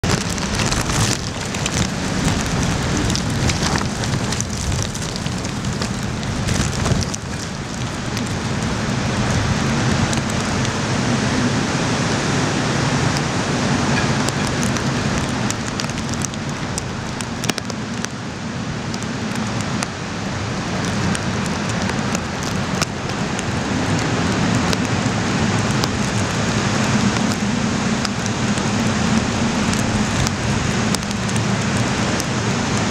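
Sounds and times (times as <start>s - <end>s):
driving rain: 0.0s - 32.9s
wind buffeting microphone: 0.0s - 32.9s.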